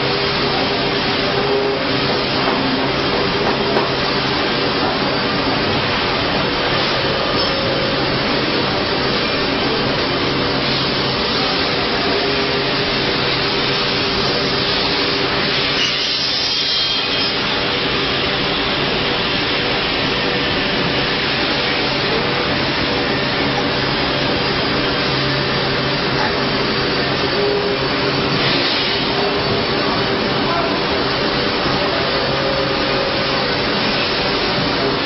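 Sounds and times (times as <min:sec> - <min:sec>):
cnc router spindle carving stone: 0:00.0 - 0:35.0.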